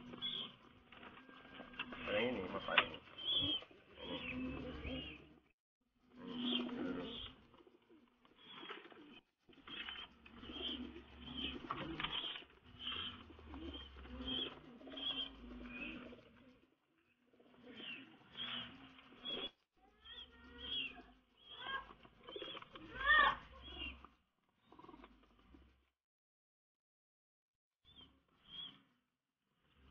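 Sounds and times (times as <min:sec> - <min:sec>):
pigeons cooing: 0:00.0 - 0:05.5, 0:06.1 - 0:19.6, 0:20.2 - 0:24.0, 0:24.6 - 0:25.6.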